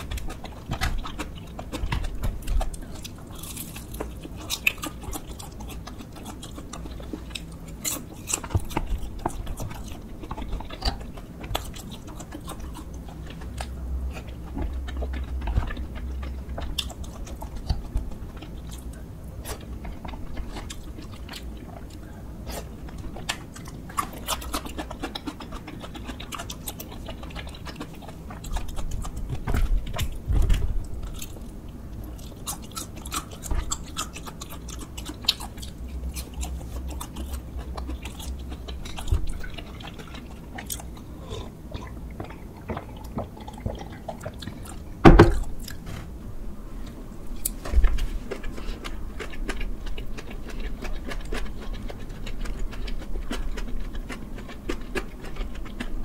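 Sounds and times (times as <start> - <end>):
wet chewing and crunching: 0.0 - 46.2, 46.8 - 56.0
loud thump: 45.0 - 45.4.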